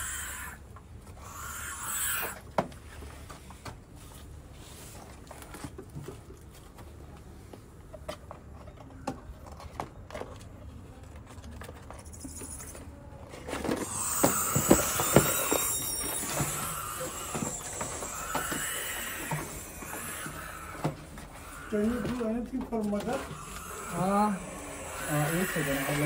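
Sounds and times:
owl chick hissing: 0.0 - 0.6, 1.2 - 2.4, 13.8 - 22.2, 23.2 - 26.0.

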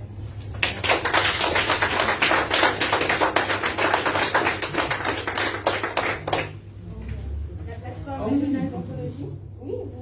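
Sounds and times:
small audience applauding: 0.4 - 6.7.

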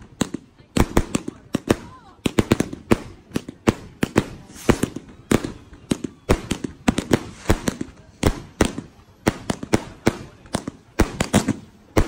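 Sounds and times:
fireworks bangs echoing: 0.0 - 12.0.

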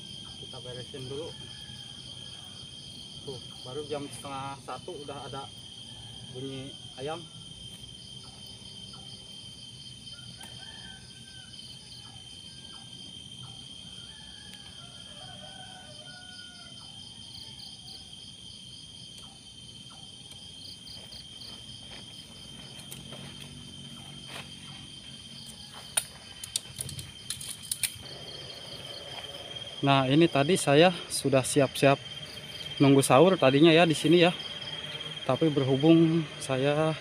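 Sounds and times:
night insects trilling: 0.0 - 37.0
pulsing insect chirps: 0.0 - 37.0
tent gear clicks and knocks: 25.4 - 28.1.

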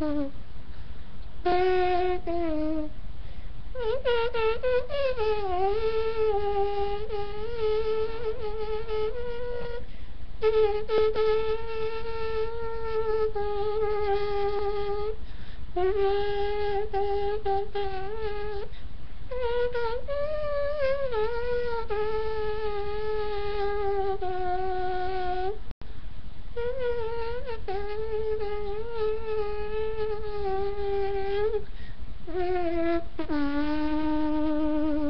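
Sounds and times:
person imitating a trumpet: 0.0 - 0.3, 1.4 - 2.9, 3.8 - 9.8, 15.8 - 18.7, 26.6 - 31.6, 32.3 - 35.0.

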